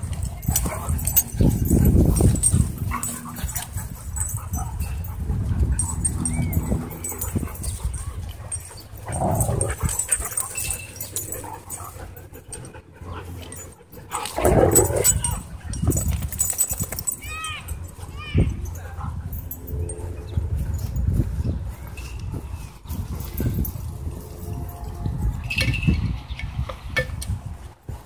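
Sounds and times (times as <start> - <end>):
dogs growling while play-fighting: 0.0 - 15.5.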